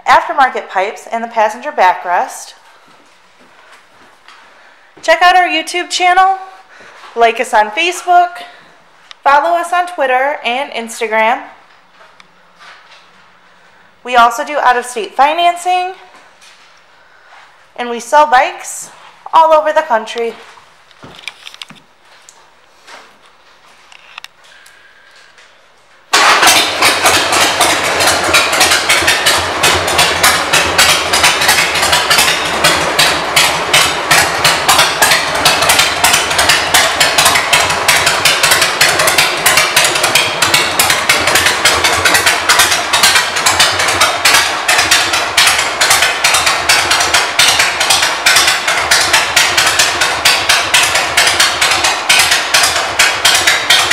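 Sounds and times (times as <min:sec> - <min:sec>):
motorcycle engine idling: 0:26.2 - 0:53.9.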